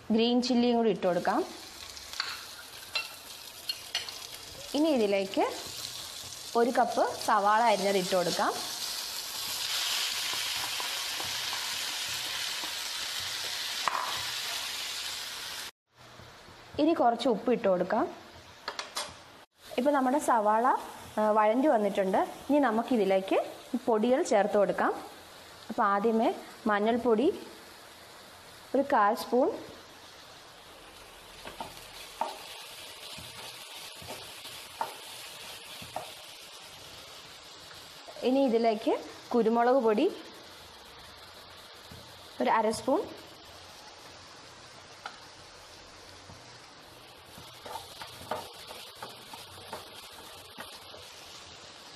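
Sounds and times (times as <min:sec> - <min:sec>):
onions sizzling in hot oil: 0:00.0 - 0:51.9
wooden spatula stirring: 0:47.2 - 0:51.2.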